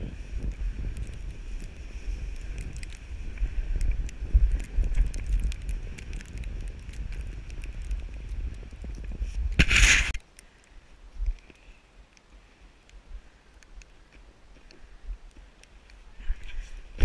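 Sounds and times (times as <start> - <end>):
wind buffeting microphone: 0.0 - 10.2
sled hissing over snow: 9.6 - 10.2.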